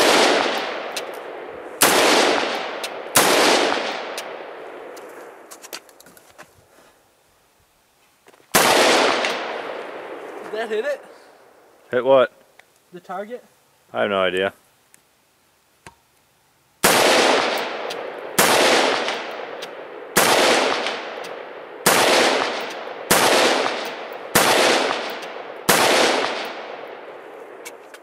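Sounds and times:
rifle shots echoing: 0.0s - 4.9s, 8.5s - 10.2s, 16.8s - 27.3s.

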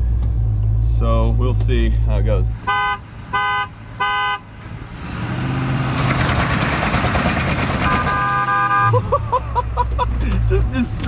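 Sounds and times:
truck engines revving: 0.0s - 11.0s
steady horn: 2.6s - 4.5s, 7.8s - 9.0s
vehicle horn honks: 2.6s - 4.5s, 7.8s - 9.0s
tyres spinning on dirt: 3.0s - 8.4s.

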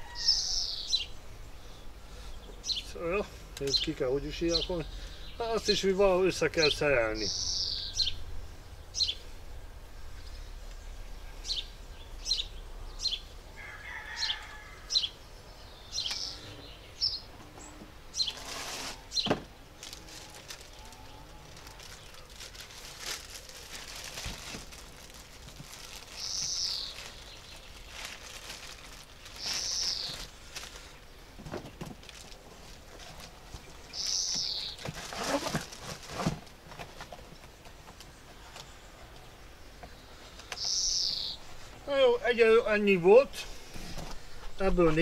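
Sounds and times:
small birds chirping: 0.0s - 45.0s
plastic wrapping rustling: 18.2s - 38.7s
bird falling calls: 25.9s - 27.8s, 29.2s - 31.0s, 33.7s - 35.7s, 40.1s - 42.8s.

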